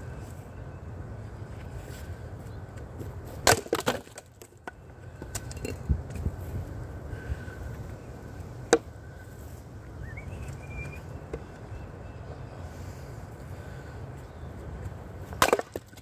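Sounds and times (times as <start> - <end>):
axe splitting firewood: 3.4 - 4.5, 15.3 - 16.0
wood pieces knocking: 3.4 - 5.8
bird chirp: 9.0 - 14.8.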